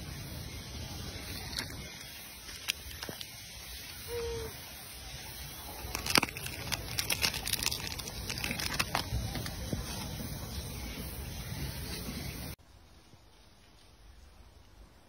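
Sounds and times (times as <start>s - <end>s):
plastic wrapper crinkling: 2.4s - 3.3s, 5.8s - 9.6s.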